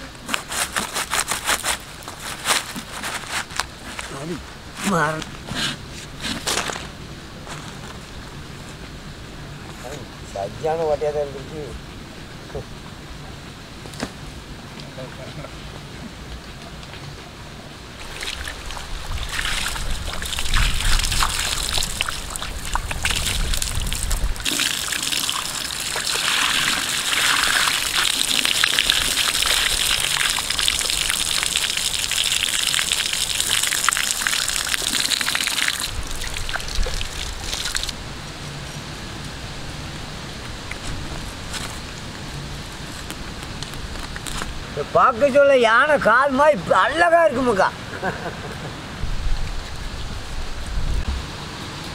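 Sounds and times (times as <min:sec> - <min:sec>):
water pouring and splashing: 0:18.0 - 0:38.0.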